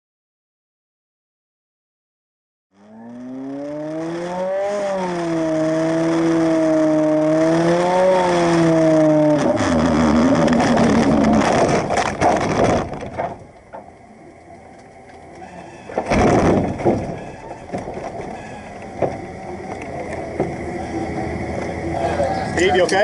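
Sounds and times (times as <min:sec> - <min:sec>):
rough rumble with knocks: 0:02.8 - 0:14.0, 0:14.8 - 0:21.8.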